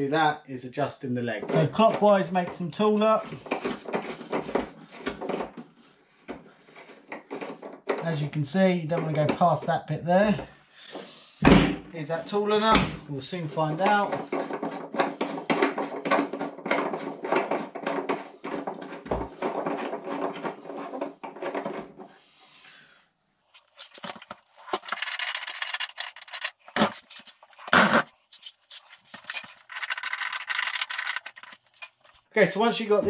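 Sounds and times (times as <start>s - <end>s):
plastic scraping: 1.5s - 5.7s, 13.4s - 22.2s, 23.5s - 32.3s
plastic threads clicking: 24.0s - 26.9s, 28.8s - 32.2s.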